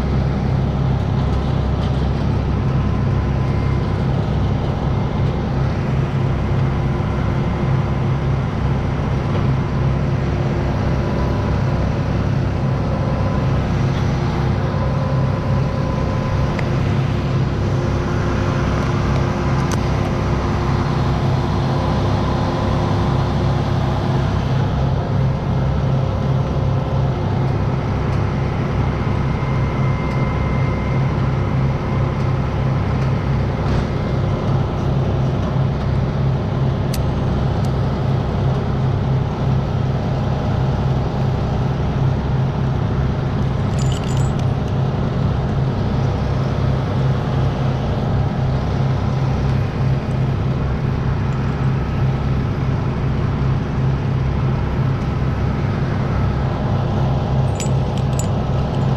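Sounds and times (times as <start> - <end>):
truck engine running: 0.0 - 58.9
metallic jingles of climbing hardware: 43.6 - 44.6, 57.4 - 58.9.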